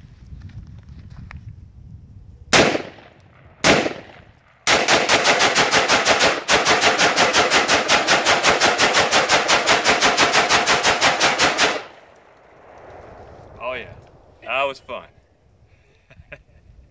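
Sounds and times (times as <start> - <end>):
rifle firing: 2.6 - 12.7.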